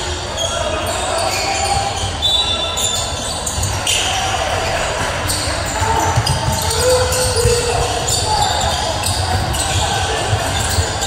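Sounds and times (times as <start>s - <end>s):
players' voices: 0.0s - 11.0s
basketball bouncing on court: 5.0s - 11.0s.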